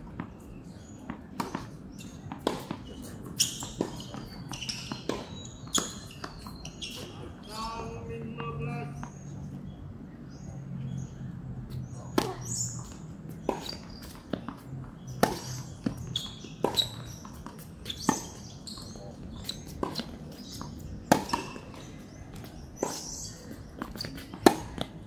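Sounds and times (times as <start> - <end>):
tennis ball bouncing: 1.1 - 1.7, 2.3 - 7.2, 11.8 - 25.0
racket hitting tennis ball: 12.1 - 14.6, 15.2 - 18.5, 19.3 - 25.0.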